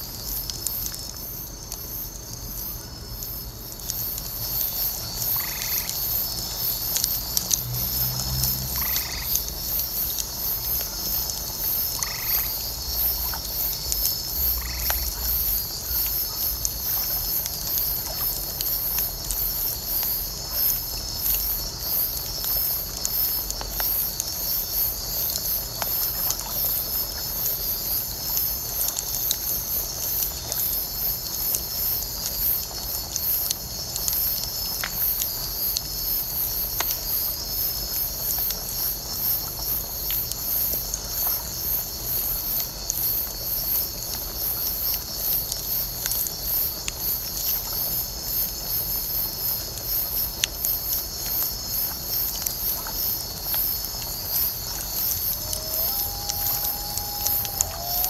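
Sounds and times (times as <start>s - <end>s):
bonfire crackling: 0.0s - 58.0s
frogs and insects trilling: 0.0s - 58.0s
frog calls: 54.7s - 58.0s.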